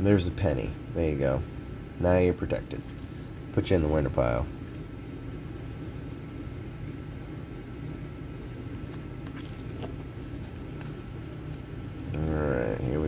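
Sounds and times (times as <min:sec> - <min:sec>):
low background hum: 0:00.0 - 0:13.0
trading cards being handled: 0:02.7 - 0:03.2, 0:08.6 - 0:12.8.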